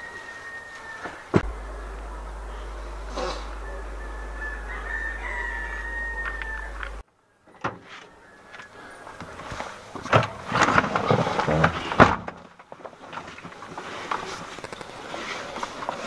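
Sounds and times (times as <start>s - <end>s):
thin steady tone: 1.4s - 7.0s.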